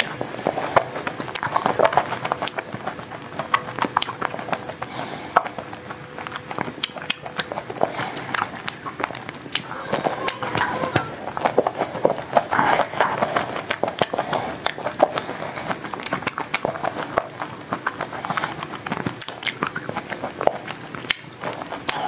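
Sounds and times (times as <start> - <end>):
wet mouth sounds: 0.0 - 22.0.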